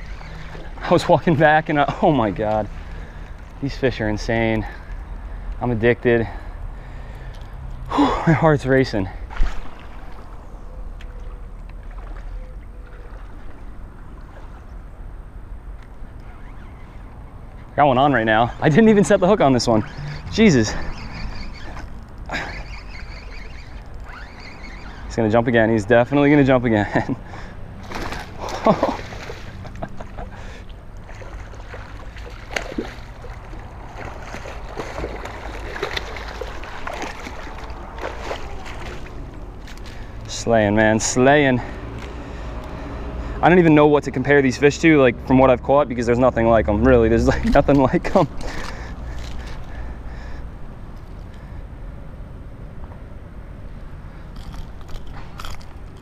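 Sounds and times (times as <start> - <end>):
water splashing from thrashing fish: 27.8 - 29.8, 30.4 - 40.2.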